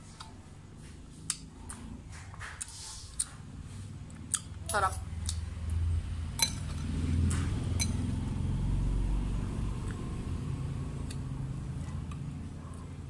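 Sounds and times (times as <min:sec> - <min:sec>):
low steady rumble: 0:03.2 - 0:13.0
spoon and fork clinking on bowl: 0:06.4 - 0:06.9, 0:07.7 - 0:08.1.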